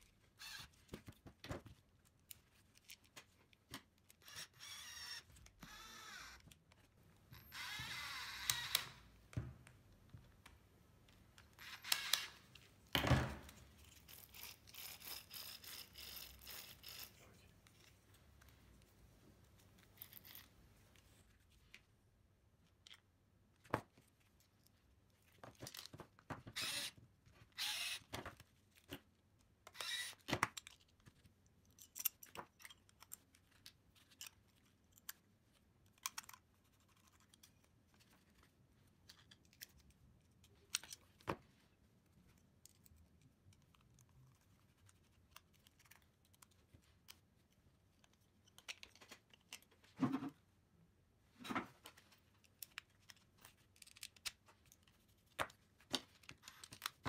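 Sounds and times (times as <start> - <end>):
small metal parts clicking: 13.8 - 17.2.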